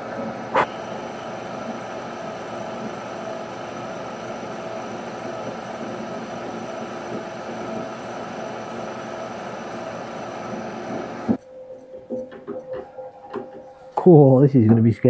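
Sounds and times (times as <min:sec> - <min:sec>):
milling machine spindle running: 0:00.0 - 0:11.4.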